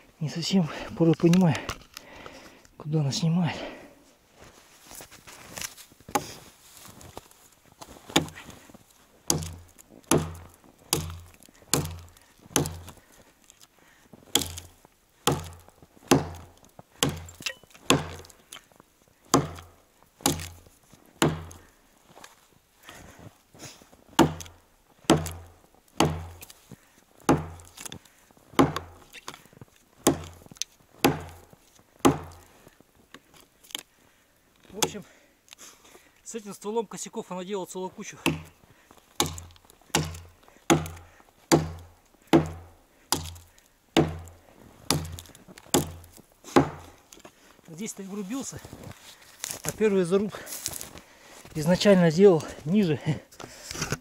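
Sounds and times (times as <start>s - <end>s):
axe chopping tree trunk: 6.1s - 6.4s, 8.1s - 8.5s, 9.3s - 13.1s, 14.3s - 18.7s, 19.3s - 21.7s, 24.2s - 26.6s, 27.2s - 28.0s, 28.6s - 32.5s, 34.7s - 35.0s, 38.2s - 38.6s, 39.2s - 47.0s.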